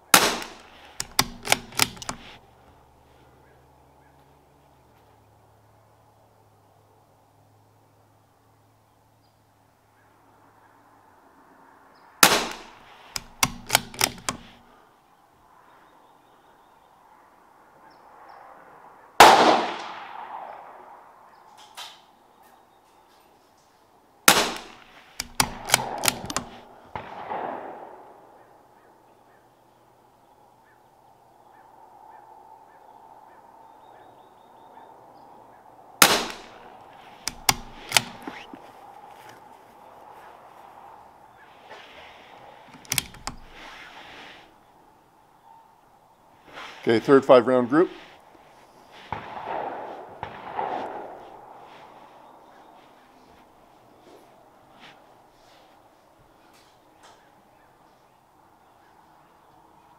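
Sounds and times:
rifle shots: 0:00.1 - 0:02.4, 0:12.2 - 0:14.6, 0:19.2 - 0:20.5, 0:24.3 - 0:28.0, 0:36.0 - 0:36.6, 0:49.1 - 0:51.2
rifle bolt clicks: 0:00.2 - 0:02.4, 0:12.2 - 0:14.7, 0:24.3 - 0:27.1, 0:36.0 - 0:36.6, 0:37.2 - 0:38.6, 0:42.7 - 0:43.6.

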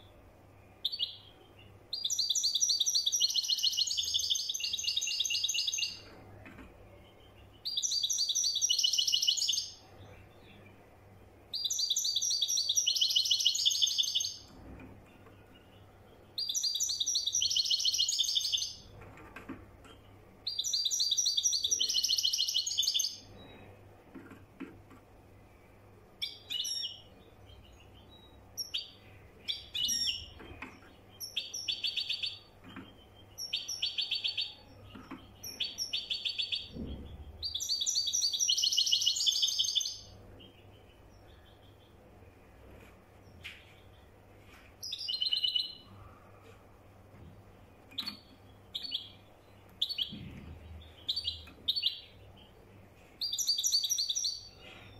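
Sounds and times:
goldfinch high twittering song: 0:07.6 - 0:09.8, 0:11.5 - 0:14.5, 0:16.4 - 0:18.8, 0:37.4 - 0:40.1.

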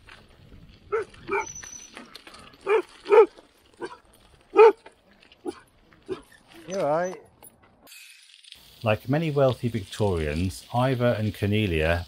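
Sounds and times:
dog barking: 0:00.9 - 0:01.5, 0:02.6 - 0:04.8.

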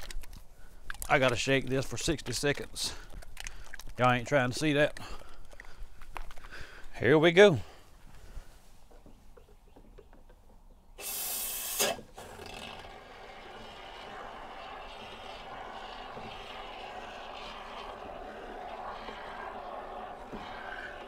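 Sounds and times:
aerosol spray foam hissing: 0:11.0 - 0:12.0
sputtering hiss of foam: 0:11.0 - 0:21.0.

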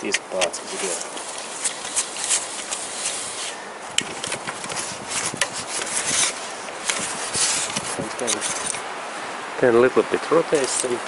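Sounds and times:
socket wrench clicking and scraping: 0:04.2 - 0:08.8.

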